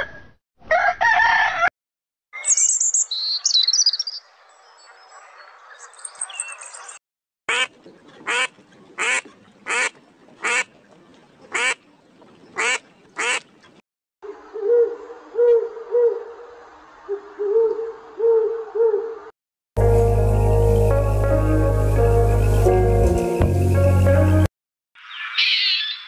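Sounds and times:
waterfowl quacking: 7.5s - 10.7s, 11.5s - 11.8s, 12.6s - 13.5s.

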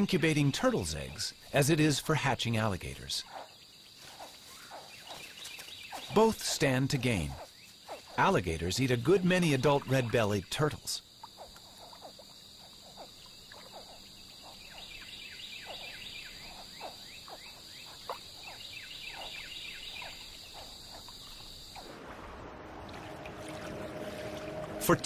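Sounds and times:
high insect drone: 0.0s - 24.8s
frog chirps: 3.2s - 21.9s.

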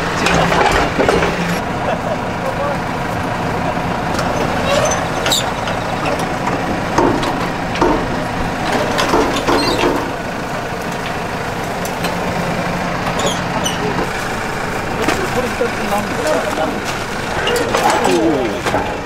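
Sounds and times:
tractor engine idling: 0.0s - 19.0s
footsteps knocking on metal footboard: 6.2s - 10.1s.

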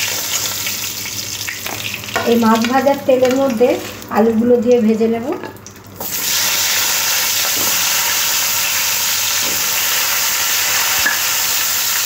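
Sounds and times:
potatoes sizzling in hot oil: 0.0s - 4.1s, 6.0s - 12.0s.

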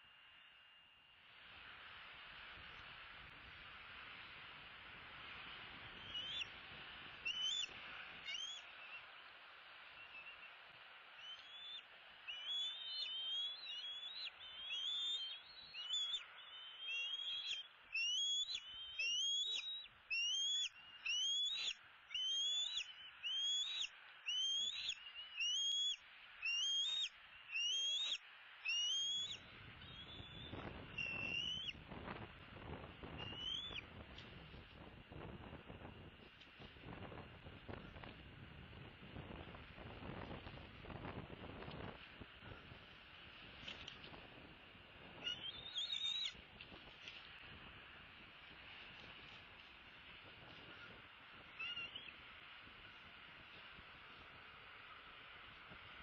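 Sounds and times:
eagles whistling calls: 5.9s - 6.6s, 7.2s - 9.2s, 11.2s - 31.8s, 33.2s - 33.8s, 45.2s - 46.4s, 50.6s - 52.2s.

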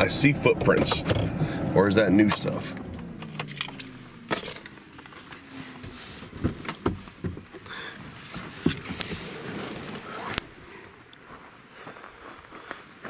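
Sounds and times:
clicks and rustling: 2.2s - 10.5s
keys jangling: 3.2s - 4.8s
camera brushing against clothes: 5.2s - 10.6s.

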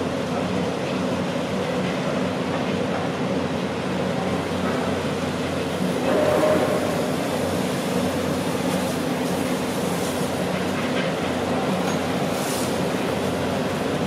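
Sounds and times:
diesel engine drone: 2.1s - 14.0s
street traffic hiss: 3.1s - 14.0s.

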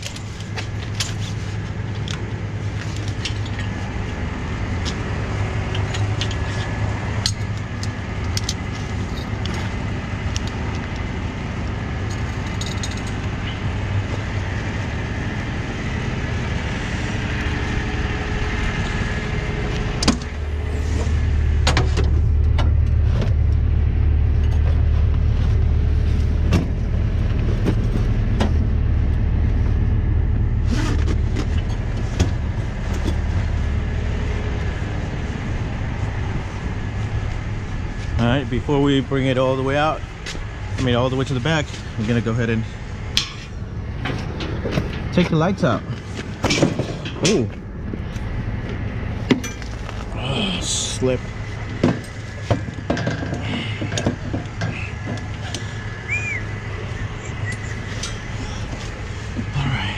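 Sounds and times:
truck engine running: 0.0s - 59.9s
chains clinking and rattling: 12.1s - 13.2s.

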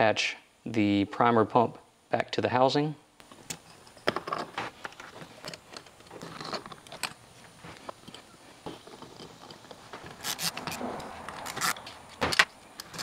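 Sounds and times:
small screws and hand tool rattling: 3.3s - 7.2s, 7.8s - 13.0s.

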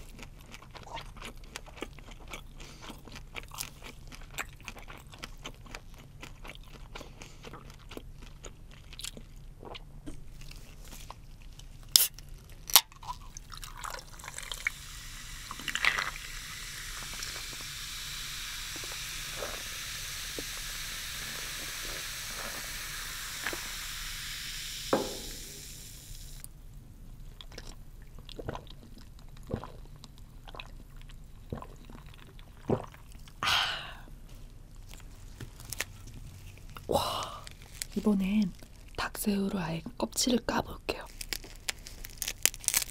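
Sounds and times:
cola pouring over ice: 13.0s - 26.4s
cola fizzing: 13.0s - 26.5s
breathy exclamation: 33.4s - 34.1s, 36.9s - 37.6s.

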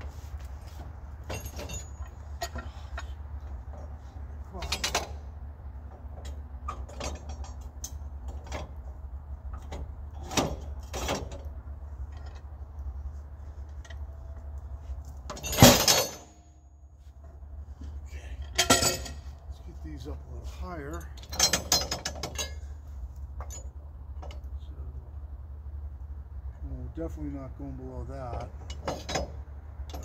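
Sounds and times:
metal clanks and knocks: 0.0s - 12.5s, 13.5s - 16.6s, 17.2s - 24.5s, 28.2s - 30.0s
low steady hum: 0.0s - 30.0s
log thumping onto steel bed: 15.3s - 16.3s.

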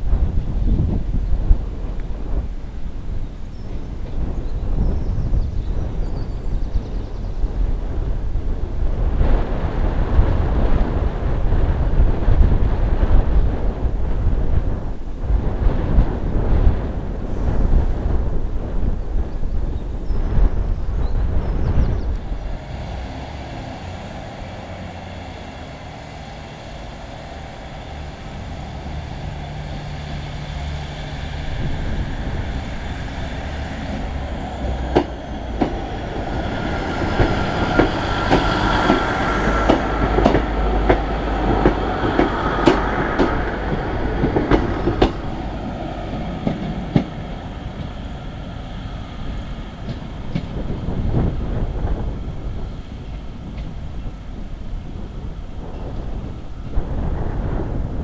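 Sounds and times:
diesel train engines running: 20.5s - 58.0s.

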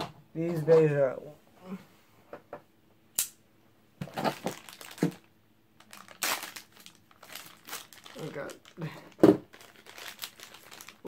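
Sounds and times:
plastic bag crinkling: 4.0s - 11.0s.

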